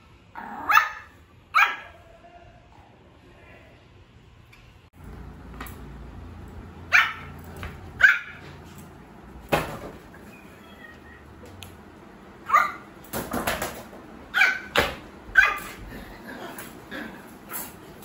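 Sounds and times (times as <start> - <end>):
puppy barking high-pitched: 0.5 - 2.0, 6.8 - 7.4, 8.0 - 8.6, 12.4 - 12.9, 14.3 - 15.8.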